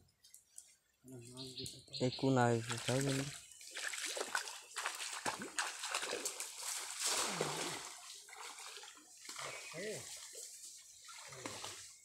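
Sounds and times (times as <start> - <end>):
water splashing from wading: 2.4 - 12.0.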